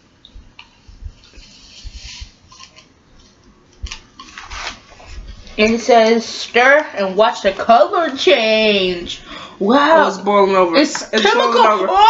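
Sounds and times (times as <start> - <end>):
paper packet rustling: 3.8 - 5.7.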